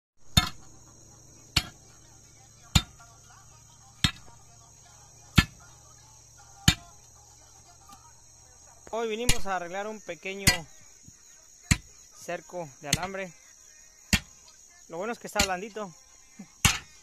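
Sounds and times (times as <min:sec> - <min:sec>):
insects chirring: 0:00.2 - 0:17.0
digging bar striking soil: 0:12.9 - 0:13.2, 0:16.6 - 0:17.0.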